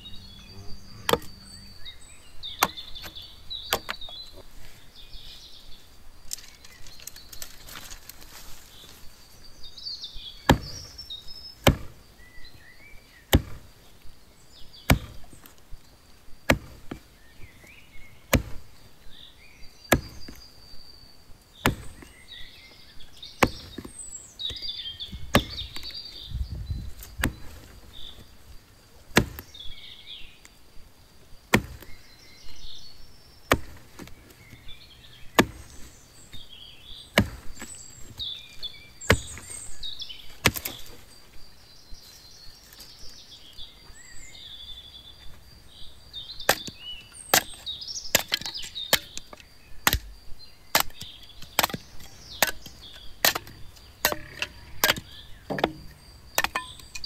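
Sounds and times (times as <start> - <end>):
small birds chirping: 0.0 - 57.0
hatchet chopping tree trunk: 0.9 - 1.4, 2.4 - 4.2, 10.4 - 12.2, 13.3 - 13.8, 14.8 - 15.6, 16.4 - 18.7, 19.8 - 20.5, 21.6 - 22.2, 23.3 - 26.4, 27.0 - 28.3, 29.1 - 29.6, 31.5 - 32.0, 33.5 - 41.0, 46.4 - 57.0.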